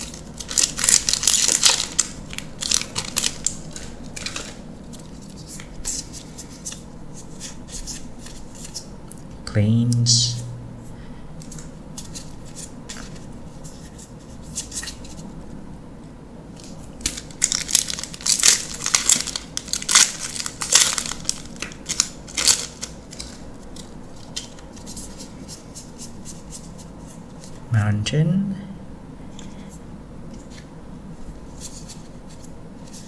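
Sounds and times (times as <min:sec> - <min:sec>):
plastic wrapper tearing and crinkling: 0:00.0 - 0:05.7, 0:16.6 - 0:24.6
cards and wrapper rustling: 0:00.0 - 0:06.8, 0:16.6 - 0:25.3.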